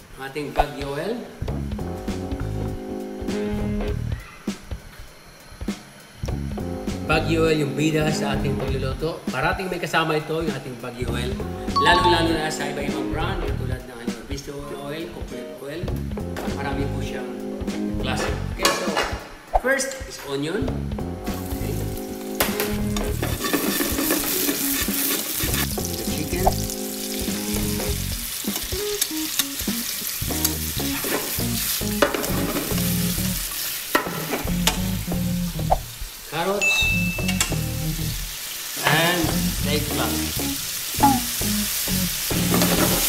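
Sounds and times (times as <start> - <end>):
oil sizzling in a frying pan: 20.8 - 43.0
wooden spatula scraping a pan: 23.1 - 25.7.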